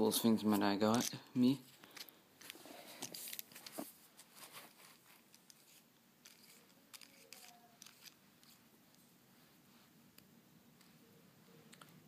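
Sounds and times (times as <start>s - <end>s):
small objects clicking and scraping: 0.5s - 1.2s, 1.8s - 9.0s.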